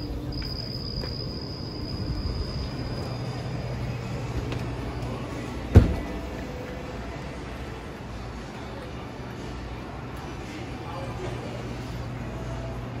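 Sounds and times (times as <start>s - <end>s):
insects trilling: 0.0s - 3.8s
sharp thump: 5.8s - 6.1s.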